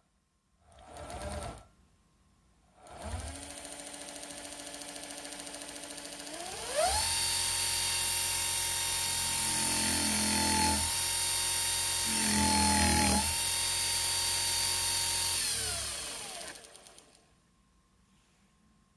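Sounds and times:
electric motor whine: 6.3 - 16.8.

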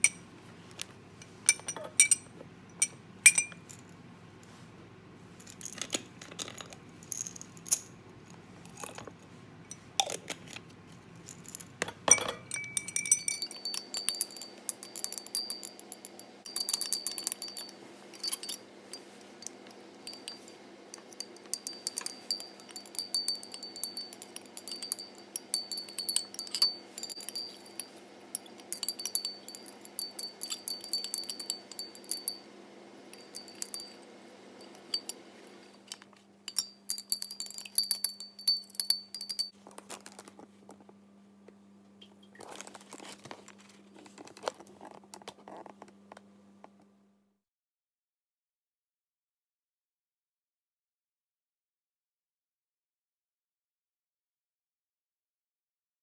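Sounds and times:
glass rods clinking against beakers: 0.0 - 0.2, 1.2 - 3.9, 11.4 - 32.5, 33.1 - 34.0, 34.6 - 35.2, 35.8 - 39.6
faint high ringing: 12.1 - 39.5.

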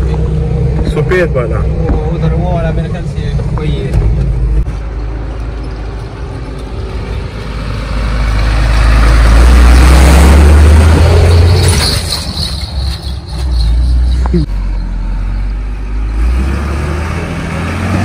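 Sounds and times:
diesel truck driving past: 4.4 - 18.0.

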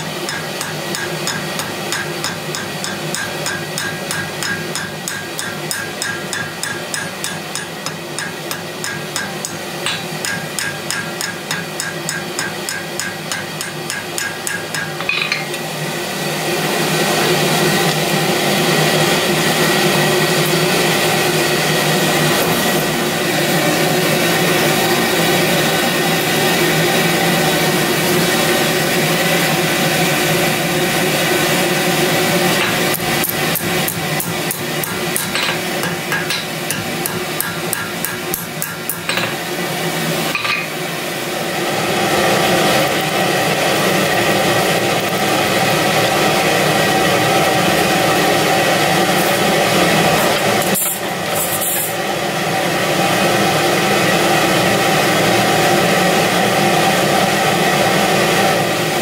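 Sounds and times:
hammer striking steel on anvil: 0.0 - 15.6, 32.5 - 39.5, 40.3 - 40.8
forge blower rushing: 0.0 - 59.0.

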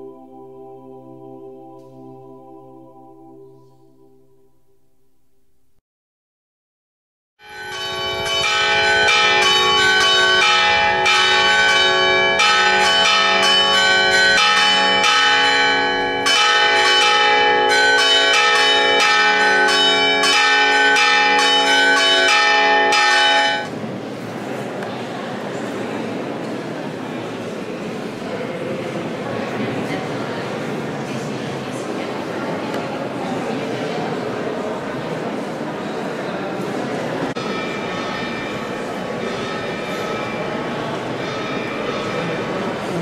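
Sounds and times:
church bells pealing: 0.0 - 5.0, 7.4 - 23.7, 37.2 - 43.0.

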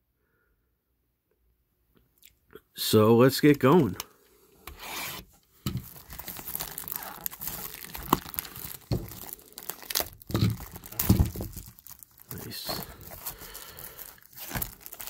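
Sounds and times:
plastic shrink-wrap crinkling: 4.8 - 15.0.

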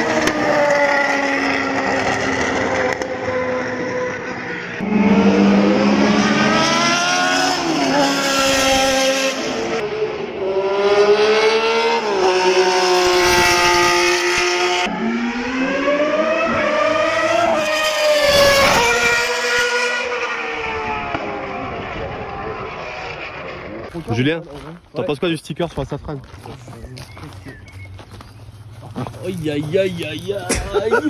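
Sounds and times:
racing car engines revving past: 0.0 - 24.0.

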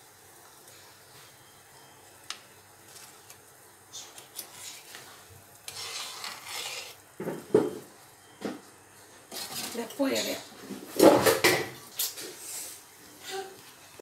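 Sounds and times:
metal ladle scraping in pot: 4.0 - 7.0, 9.3 - 10.4.

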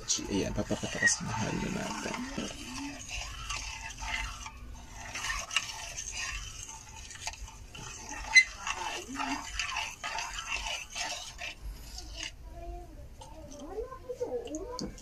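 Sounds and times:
utensil stirring in a bowl: 0.0 - 15.0
utensil clinking against bowl: 0.4 - 11.6.

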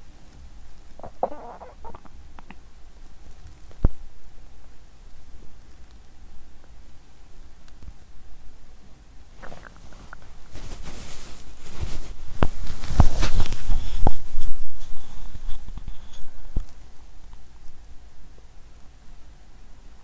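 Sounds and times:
microphone handling rustle: 9.4 - 16.8.

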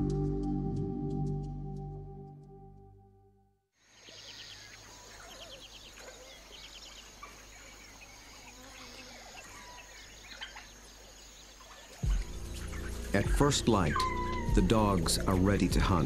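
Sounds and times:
small birds chirping and trilling: 3.8 - 16.0.

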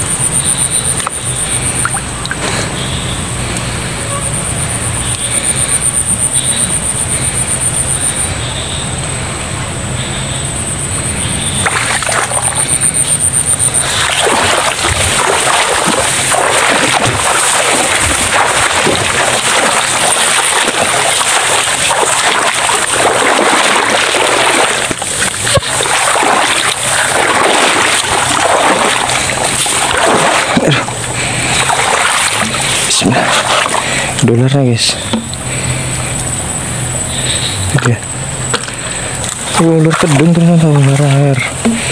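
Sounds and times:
high-pitched pulsing buzz: 0.0 - 41.9
footsteps splashing through water: 11.5 - 34.3, 37.2 - 41.9
wet vegetation brushing: 11.6 - 34.2.

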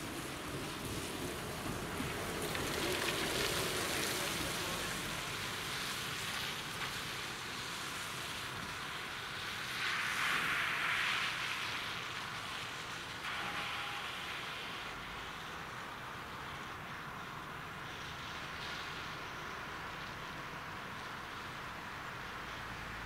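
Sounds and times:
vehicles driving past: 0.0 - 23.0
tyre hiss: 2.6 - 19.9.

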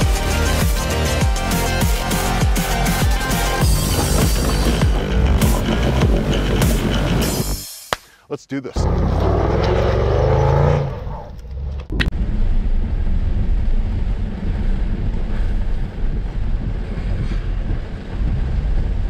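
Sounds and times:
car cabin road rumble: 2.9 - 7.6, 8.8 - 19.0.

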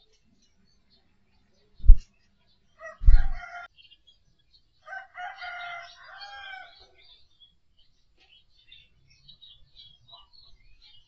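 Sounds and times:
small birds chirping: 0.0 - 11.0
rooster crowing: 2.8 - 3.7, 4.9 - 6.8.

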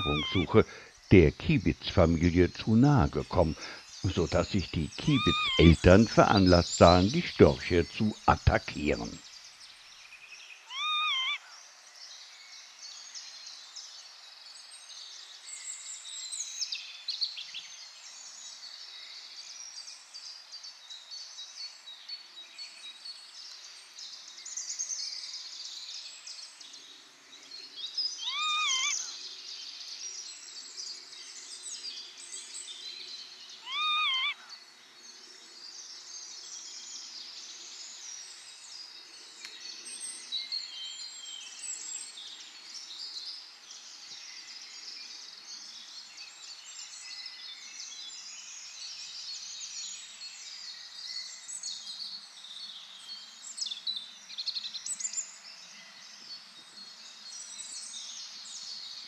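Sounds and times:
lapwing calls: 0.0 - 9.2, 10.7 - 11.5, 28.2 - 29.2, 33.6 - 34.5
small birds twittering: 0.0 - 59.0.

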